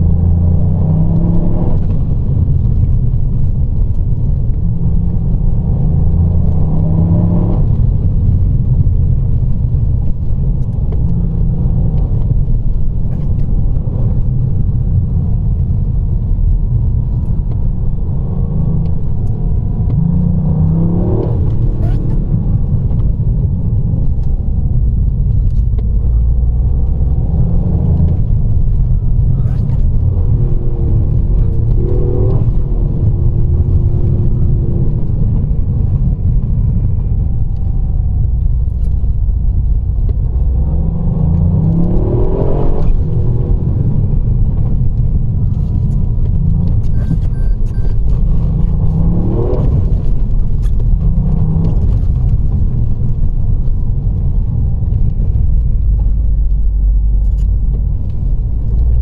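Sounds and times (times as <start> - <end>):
car engine accelerating: 0.0 - 59.0
road rumble: 0.0 - 59.0.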